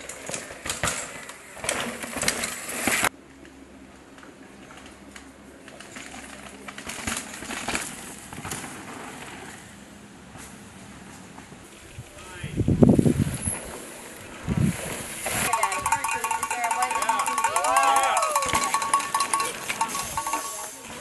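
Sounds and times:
mountain bike clattering over rocks: 0.0 - 3.1, 5.7 - 9.5, 14.8 - 21.0
tyres rushing on dirt: 13.2 - 21.0.

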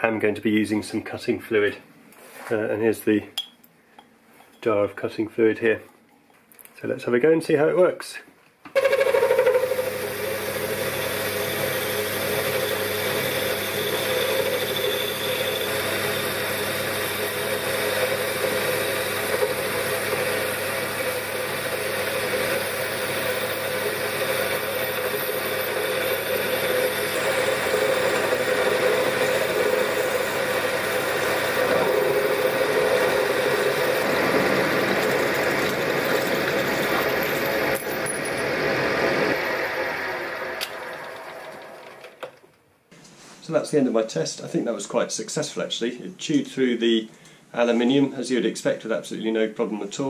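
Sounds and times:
lathe motor hum: 8.8 - 42.3.

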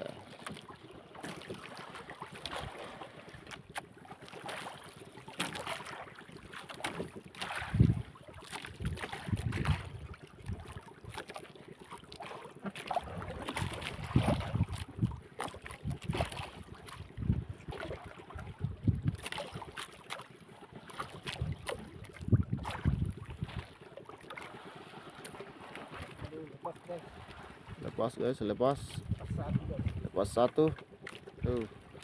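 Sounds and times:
water lapping against boat hull: 0.0 - 32.0
wind on microphone: 7.6 - 10.6, 13.0 - 15.2, 15.8 - 19.2, 21.3 - 23.7, 28.8 - 30.4.

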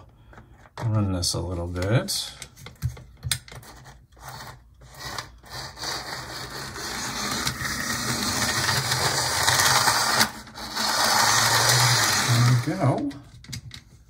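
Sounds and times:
model train motor whirring: 4.3 - 13.1.

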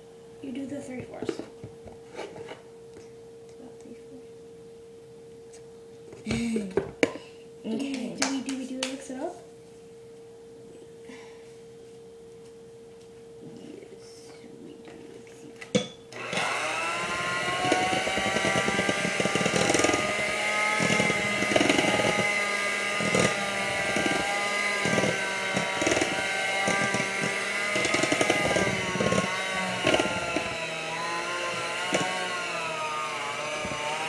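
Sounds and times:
electric mixer churning dough: 16.1 - 34.0.

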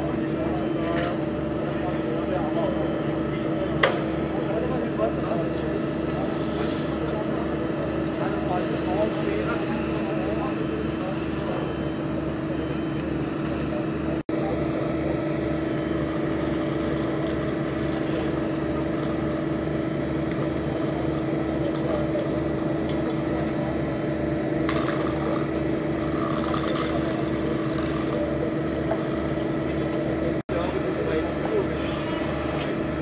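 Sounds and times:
engine droning with low throb: 0.0 - 33.0.

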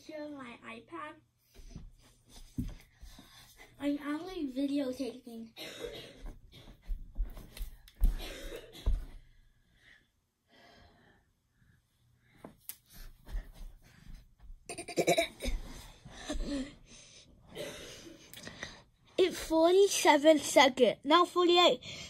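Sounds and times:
breaths close to microphone: 21.8 - 22.0.

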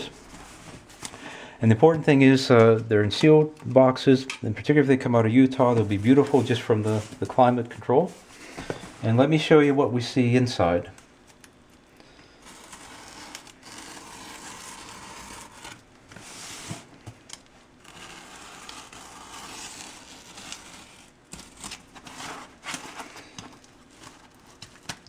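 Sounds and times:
packing tape peeling off cardboard: 12.4 - 25.0.

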